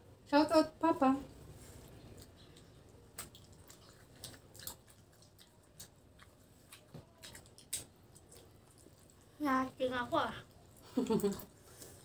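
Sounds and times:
chewing and lip-smacking: 0:02.0 - 0:09.4.

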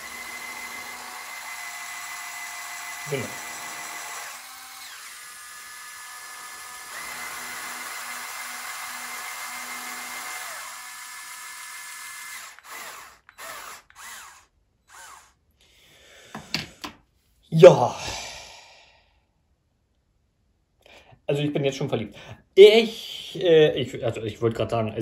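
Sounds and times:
small electric motors whining: 0:00.0 - 0:15.4.

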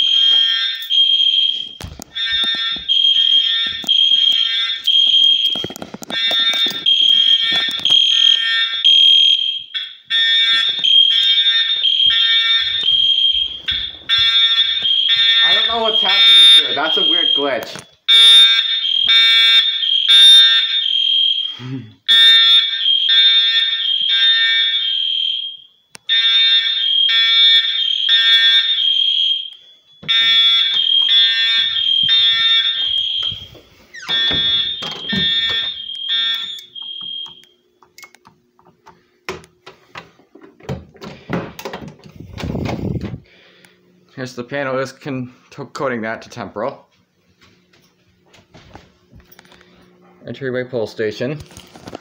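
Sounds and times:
fire alarm horn blasts: 0:00.0 - 0:37.6.

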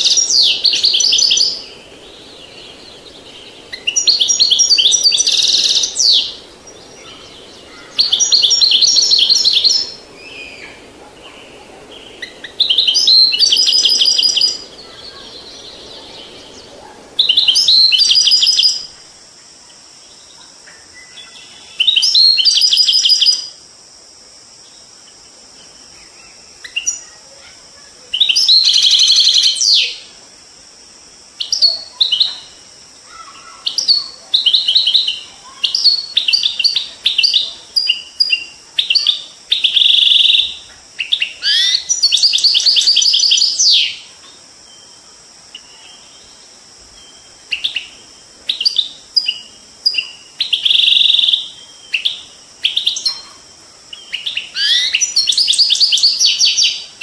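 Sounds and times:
goldfinch singing: 0:00.0 - 0:18.9
running water hiss: 0:00.0 - 0:57.0.

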